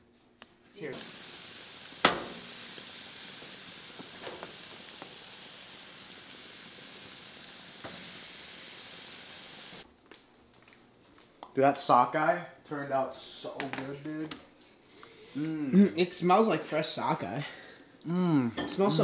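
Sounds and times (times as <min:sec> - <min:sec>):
fish sizzling on a grill: 0:00.8 - 0:09.9.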